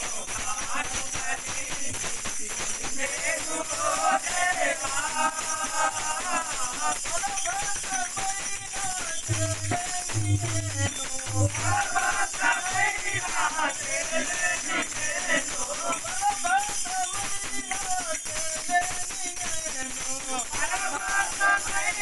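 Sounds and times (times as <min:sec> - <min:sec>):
man singing devotional song: 0:00.0 - 0:22.0
small hand cymbals jingling: 0:00.0 - 0:22.0
tabla drumming: 0:04.2 - 0:22.0
deep tabla bass strokes: 0:09.3 - 0:11.9.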